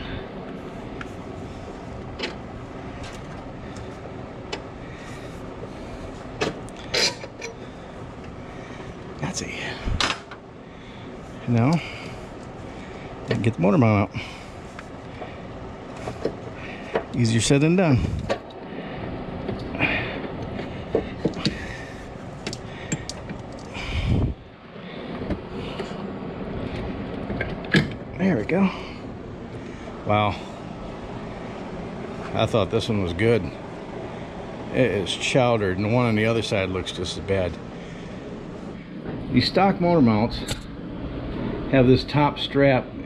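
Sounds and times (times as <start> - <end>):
steady background hiss: 0.0 - 43.0.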